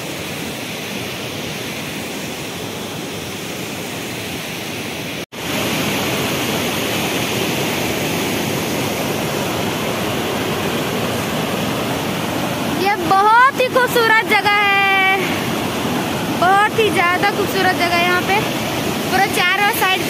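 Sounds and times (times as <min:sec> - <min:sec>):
waterfall rushing: 0:00.0 - 0:20.0.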